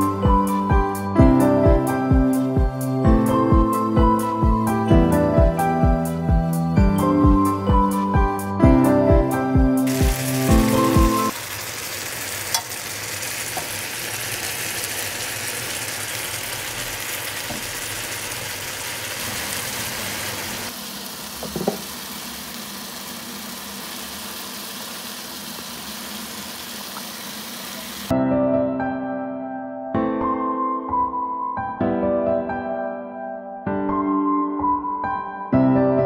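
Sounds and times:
food sizzling in a pan: 9.9s - 28.1s.

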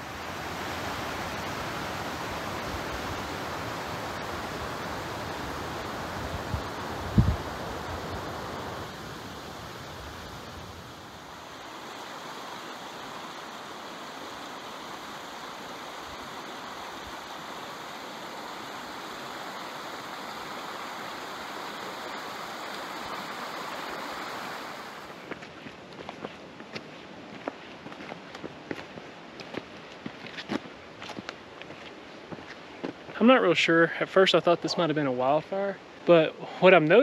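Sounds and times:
stream water rushing: 0.0s - 37.0s
footsteps crunching on trail: 25.1s - 33.2s.

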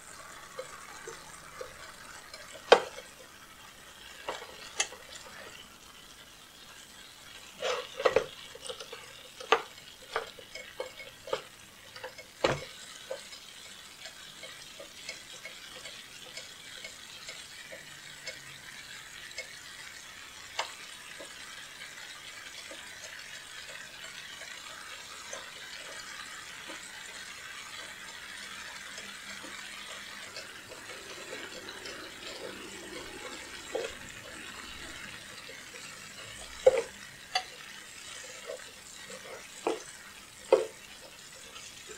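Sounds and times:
meat and onion sizzling in a pan: 0.0s - 41.9s
wooden spatula scraping a pan: 7.4s - 13.7s, 24.5s - 41.9s.

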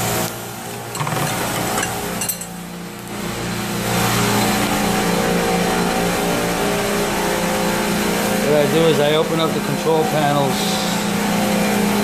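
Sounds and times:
machinery hum: 0.0s - 12.0s
metal tools clinking: 0.6s - 2.6s.

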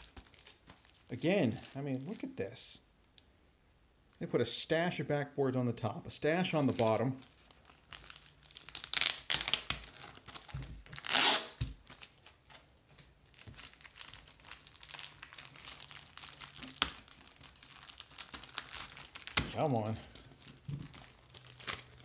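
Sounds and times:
cardboard crinkling and crackling: 0.0s - 2.4s, 6.5s - 22.0s
cardboard ripping: 10.4s - 11.7s.

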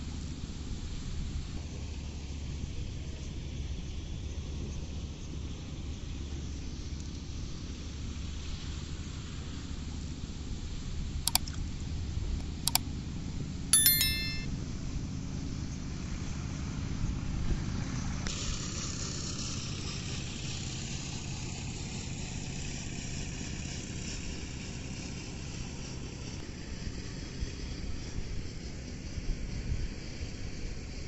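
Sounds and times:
mouse clicks: 11.3s - 11.6s
notification ding: 13.8s - 14.5s.

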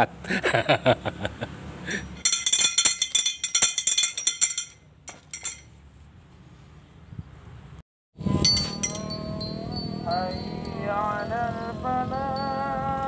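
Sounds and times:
metal clappers striking pipe: 2.2s - 5.6s.

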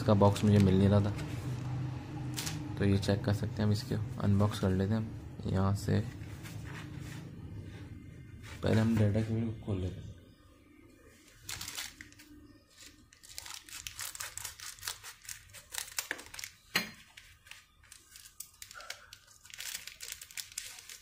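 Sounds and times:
plastic bag crinkling: 11.3s - 21.0s
scissors cutting plastic: 12.8s - 21.0s.

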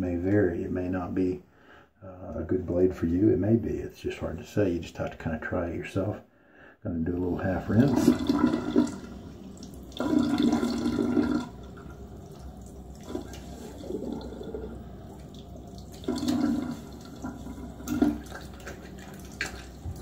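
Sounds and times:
water splashing at sink: 7.2s - 20.0s.

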